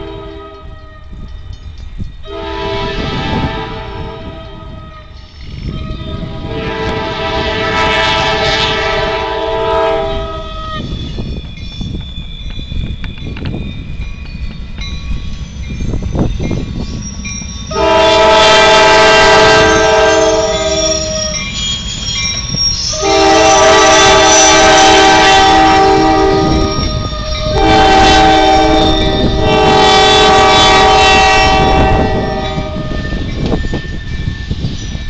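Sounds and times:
locomotive air horn chord: 0:00.0 - 0:01.1, 0:02.3 - 0:05.2, 0:05.8 - 0:10.8, 0:17.7 - 0:21.4, 0:22.9 - 0:33.2.

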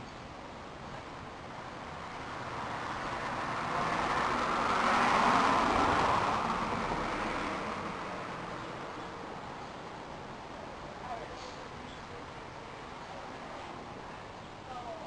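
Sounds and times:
vehicle passing by: 0:02.0 - 0:09.4.

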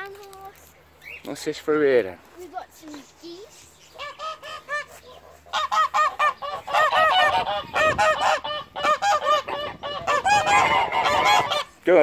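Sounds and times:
geese honking: 0:03.9 - 0:11.8.

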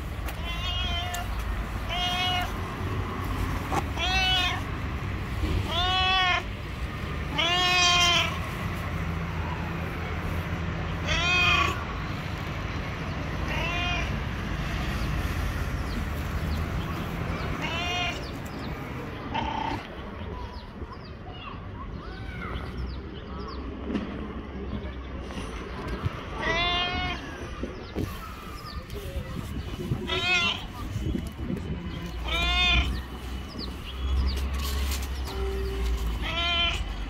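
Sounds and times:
cat meowing: 0:00.4 - 0:01.3, 0:01.9 - 0:02.6, 0:03.9 - 0:04.7, 0:07.3 - 0:08.4, 0:32.2 - 0:33.0.

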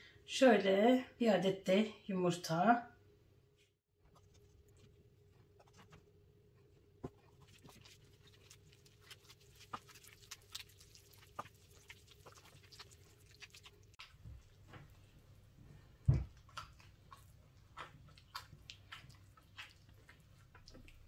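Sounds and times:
hand kneading wet dough: 0:04.0 - 0:21.0.

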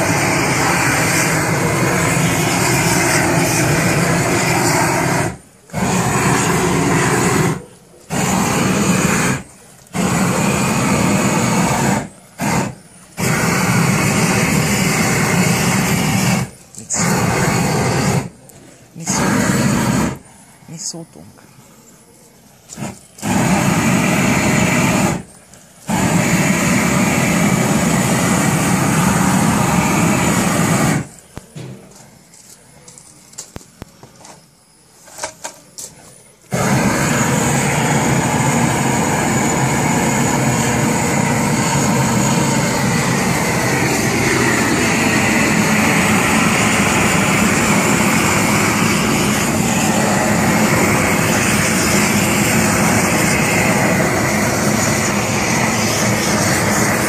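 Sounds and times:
propane torch flame rushing: 0:00.0 - 0:20.8, 0:21.8 - 0:57.0.

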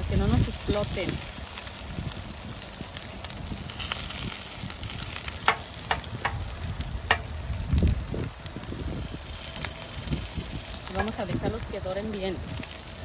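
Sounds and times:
meat sizzling on a griddle: 0:00.0 - 0:13.0
knife point striking griddle: 0:05.4 - 0:06.4.

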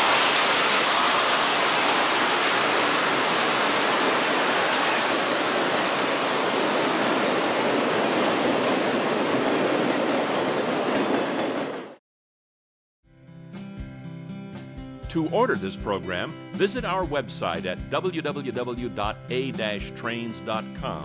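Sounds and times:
steam venting hiss: 0:00.0 - 0:07.5.

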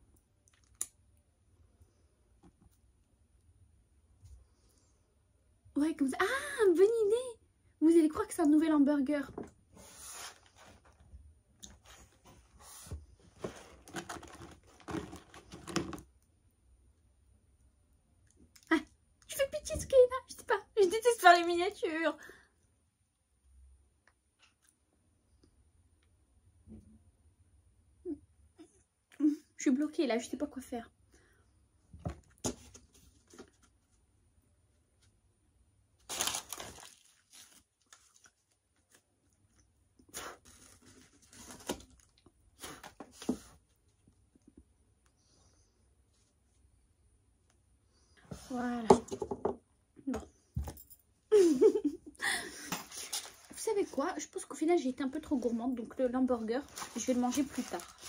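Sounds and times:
paper rustling: 0:11.8 - 0:16.0, 0:36.1 - 0:39.0, 0:56.4 - 0:58.0
paper wrapper rustling and crinkling: 0:13.3 - 0:16.0, 0:36.0 - 0:39.1, 0:40.4 - 0:43.6, 0:52.7 - 0:54.1, 0:55.1 - 0:58.0.

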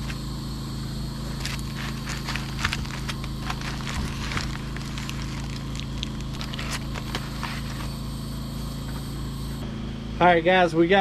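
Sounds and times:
steady low hum: 0:00.0 - 0:11.0
aluminium foil crinkling: 0:01.3 - 0:08.0.

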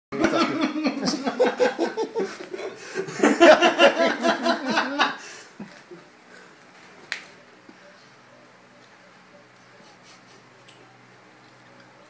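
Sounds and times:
people laughing: 0:00.2 - 0:06.0.

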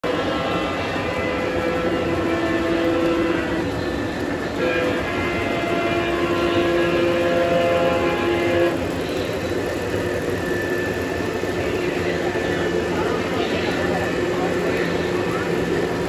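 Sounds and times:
electronic locomotive horn chord: 0:00.0 - 0:09.4
model trains rumbling on track: 0:00.0 - 0:16.0.

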